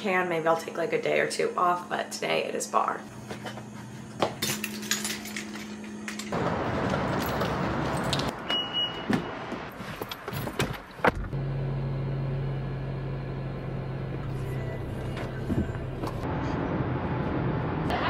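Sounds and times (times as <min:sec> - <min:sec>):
low car hum: 0:11.1 - 0:18.0.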